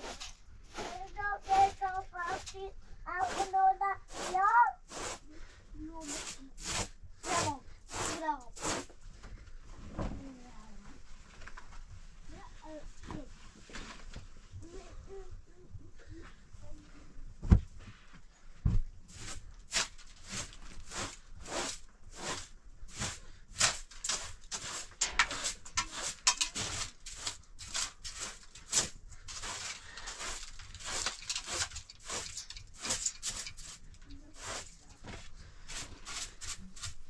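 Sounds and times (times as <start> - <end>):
sharp knocks and scrapes: 0.0 - 5.2, 6.0 - 10.2, 18.7 - 37.0.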